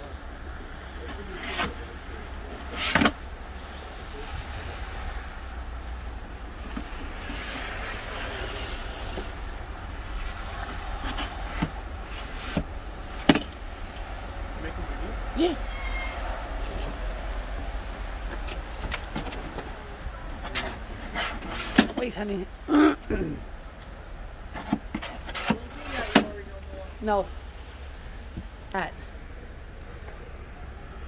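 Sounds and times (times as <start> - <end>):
snow shovel scraping steps: 24.6 - 26.4.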